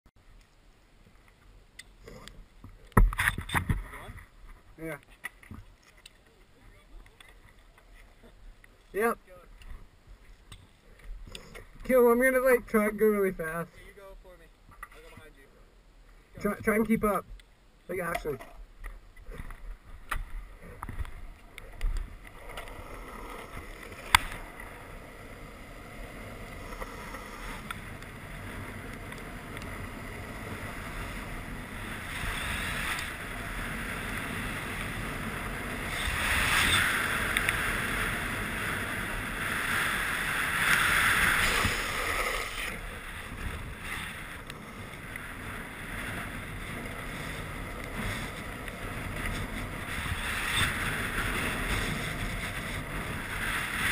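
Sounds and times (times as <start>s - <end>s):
longboard wheels rolling on asphalt: 0.2s - 53.9s
wind rushing over camera: 18.6s - 53.9s.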